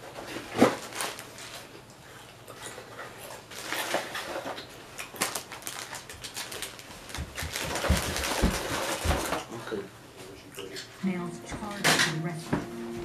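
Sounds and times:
plastic packaging crinkling: 0:00.4 - 0:01.7, 0:03.5 - 0:09.4.

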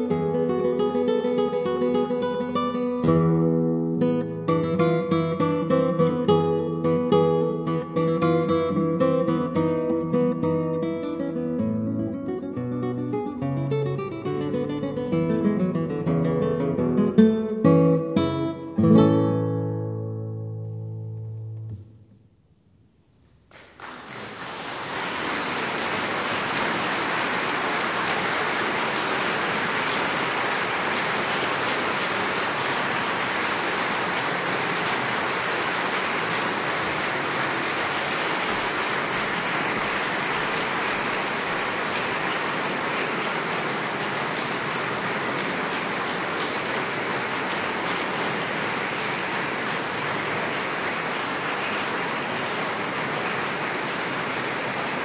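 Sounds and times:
audience applauding: 0:00.0 - 0:03.2, 0:04.0 - 0:12.9, 0:23.5 - 0:55.0.

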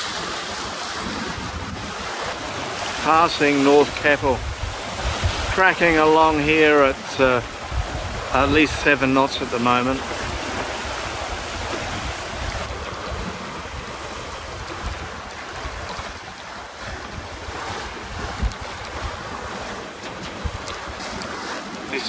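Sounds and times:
water rushing along hull: 0:00.0 - 0:22.0
wind buffeting microphone: 0:00.0 - 0:22.0.

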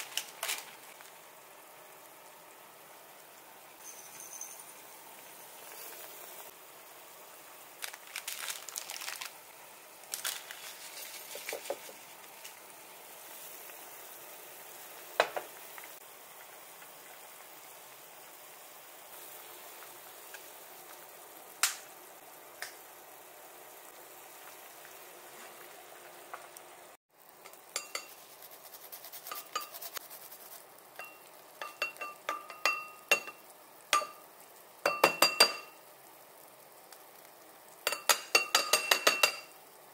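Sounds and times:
garlic grating clinks and scrapes: 0:27.8 - 0:28.3, 0:29.1 - 0:30.0
utensil knocking against a pot: 0:31.0 - 0:33.4, 0:34.8 - 0:35.7, 0:37.9 - 0:39.5.

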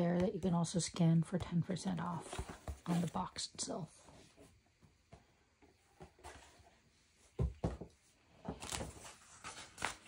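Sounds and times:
paper rustling: 0:08.5 - 0:10.0.

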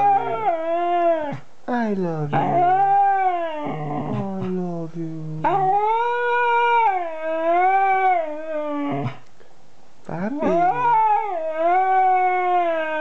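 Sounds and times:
dog howling: 0:00.0 - 0:01.4, 0:02.3 - 0:04.4, 0:05.4 - 0:09.2, 0:10.4 - 0:13.0.

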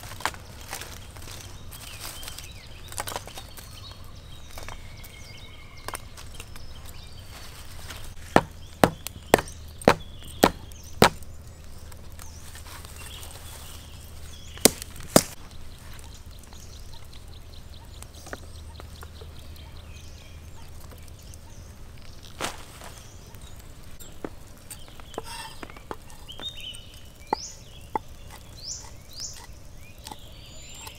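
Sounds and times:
stake pounded into ground: 0:08.2 - 0:11.3, 0:14.6 - 0:15.4.

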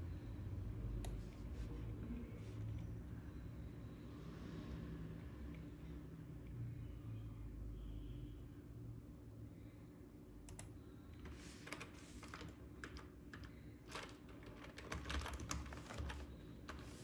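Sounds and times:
low steady hum: 0:00.0 - 0:17.0
typing on keyboard: 0:10.5 - 0:17.0.

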